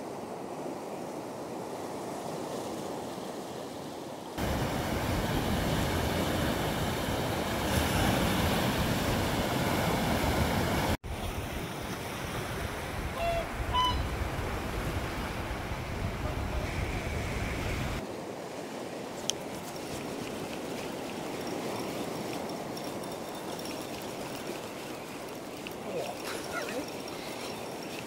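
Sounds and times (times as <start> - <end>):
wind buffeting microphone: 4.4 - 18.0
surf washing over rocks: 4.4 - 28.0.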